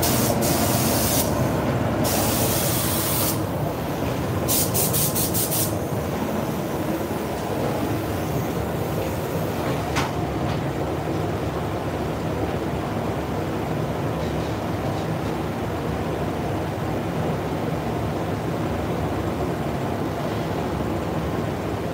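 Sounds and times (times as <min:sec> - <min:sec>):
spray gun hissing: 0:00.0 - 0:03.6, 0:04.4 - 0:07.2
low rumble of air extraction: 0:00.0 - 0:21.9.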